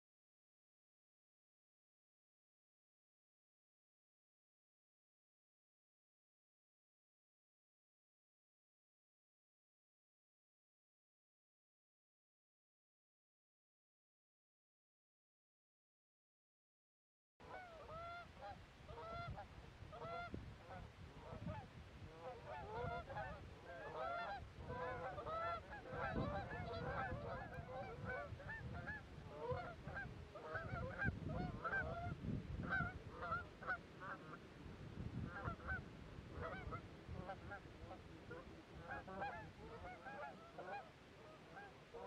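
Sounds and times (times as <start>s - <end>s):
geese honking: 17.4s - 19.4s, 20.0s - 34.4s, 35.3s - 35.8s, 36.4s - 42.0s.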